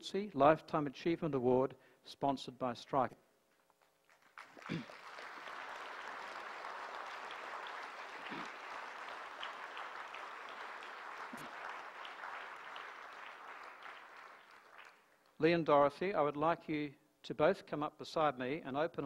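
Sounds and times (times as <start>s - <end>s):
audience applauding: 4.0s - 15.4s.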